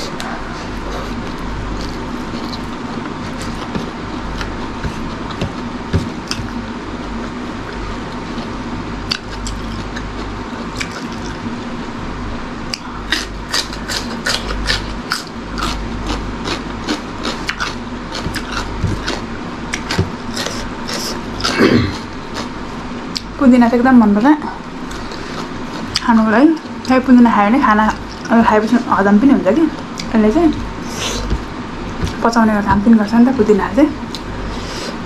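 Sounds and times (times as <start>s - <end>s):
chewing and crunching cucumber: 0.0s - 11.7s, 12.7s - 23.3s, 24.8s - 26.9s
steady background hum: 0.0s - 35.0s.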